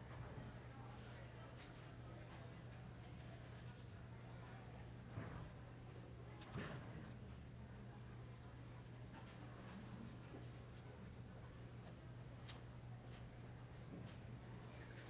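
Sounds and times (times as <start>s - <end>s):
low hum of hall: 0.0s - 15.0s
paintbrush scratching on canvas: 0.1s - 10.8s.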